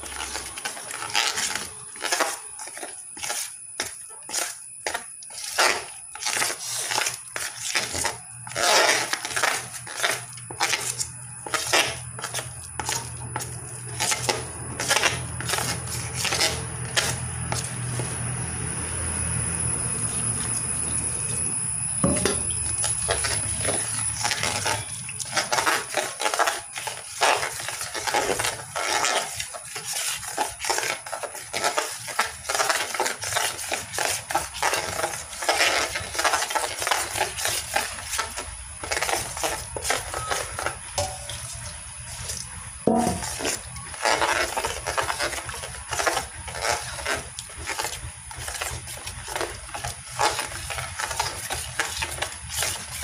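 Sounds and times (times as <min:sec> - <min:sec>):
low hum: 0:17.7 - 0:24.7
metal spoon scraping steel vessel: 0:39.1 - 0:42.2, 0:42.9 - 0:45.3.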